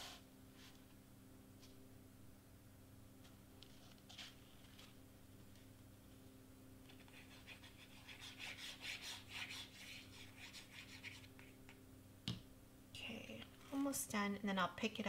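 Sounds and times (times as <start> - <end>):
steady low hum: 0.0 - 15.0
hand rubbing on cardstock: 7.0 - 11.6.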